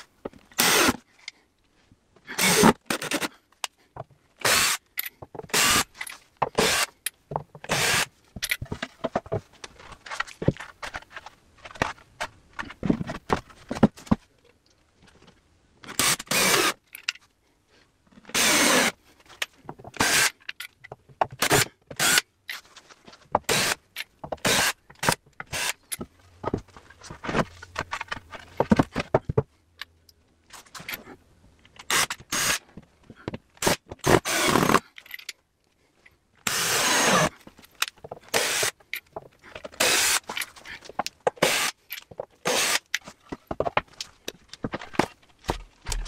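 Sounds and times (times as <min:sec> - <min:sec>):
cordless drill driving screws: 0:00.6 - 0:01.0, 0:04.4 - 0:04.8, 0:05.5 - 0:05.9, 0:06.6 - 0:06.9, 0:07.7 - 0:08.1, 0:15.9 - 0:16.8, 0:18.3 - 0:19.0, 0:20.0 - 0:20.3, 0:21.4 - 0:22.2, 0:24.4 - 0:25.8, 0:31.9 - 0:32.6, 0:33.6 - 0:34.8, 0:36.5 - 0:37.3, 0:38.3 - 0:38.8, 0:39.8 - 0:40.3, 0:41.4 - 0:41.8, 0:42.4 - 0:42.9
handling knocks and clatter: 0:08.3 - 0:14.4, 0:22.5 - 0:31.1, 0:37.4 - 0:46.0.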